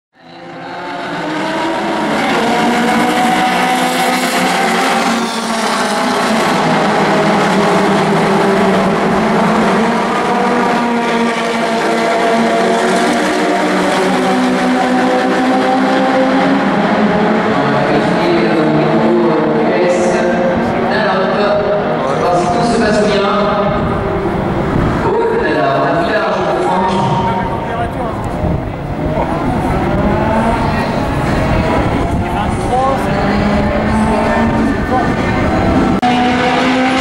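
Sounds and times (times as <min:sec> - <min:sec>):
racing cars driving past: 0:00.2 - 0:37.0.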